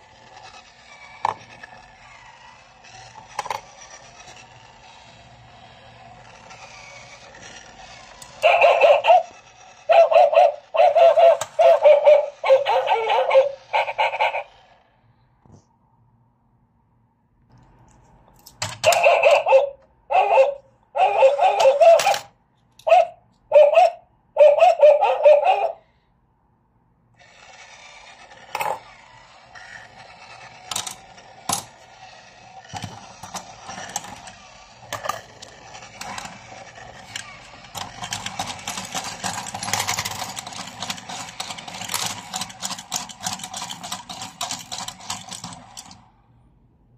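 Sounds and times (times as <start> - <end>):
small motor whirring: 0.0 - 14.8, 27.2 - 46.1
electronic dog barks: 8.4 - 14.5, 18.8 - 25.9.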